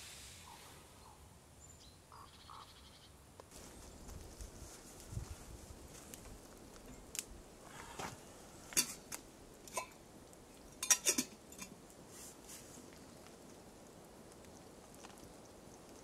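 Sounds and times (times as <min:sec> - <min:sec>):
metal cookware clinking: 0:08.8 - 0:09.0, 0:09.7 - 0:10.0, 0:10.7 - 0:11.7.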